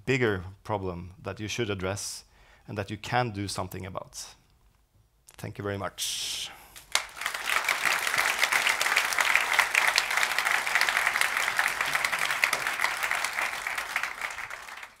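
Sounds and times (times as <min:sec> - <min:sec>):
audience applauding: 0:06.8 - 0:15.0.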